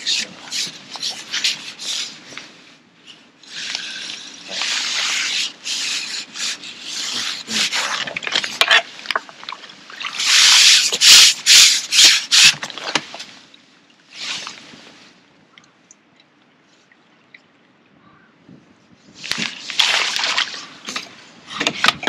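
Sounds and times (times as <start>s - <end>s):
rubbing and scraping: 0.0s - 13.5s.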